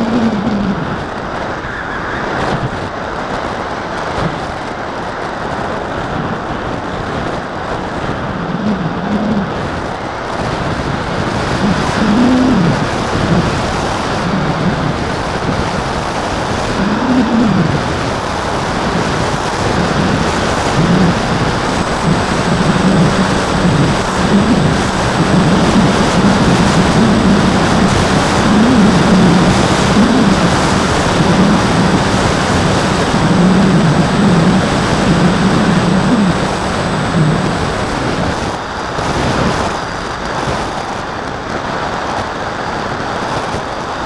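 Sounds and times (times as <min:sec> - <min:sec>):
wind rushing over camera: 0:00.0 - 0:44.0
model plane motor droning: 0:19.8 - 0:37.9.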